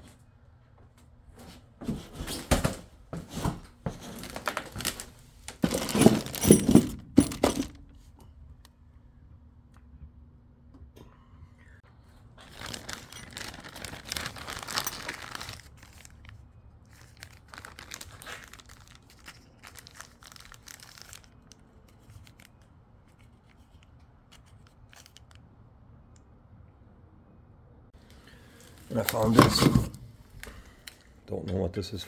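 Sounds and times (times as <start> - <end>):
plastic bag crinkling: 4.1 - 6.8, 12.4 - 22.6.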